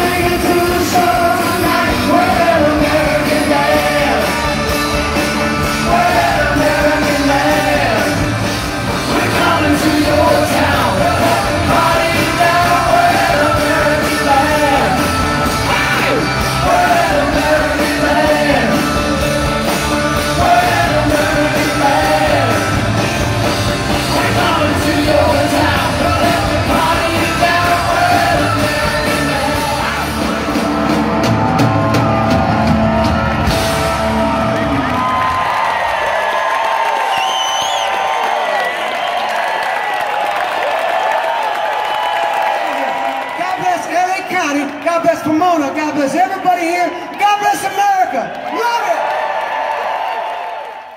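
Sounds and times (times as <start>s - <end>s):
drums and cymbals: 0.0s - 35.1s
live rock band playing: 0.0s - 35.6s
lead vocals: 0.0s - 36.4s.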